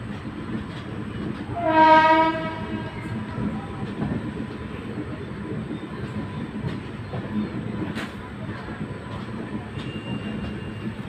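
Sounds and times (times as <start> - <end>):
train rumbling on rails: 0.0 - 11.0
locomotive horn blast: 1.6 - 3.2.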